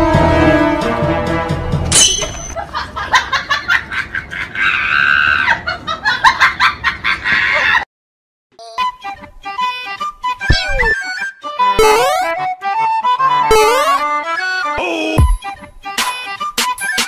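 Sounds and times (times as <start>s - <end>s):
comic cackling clucking calls: 11.8s - 12.5s, 13.2s - 14.2s.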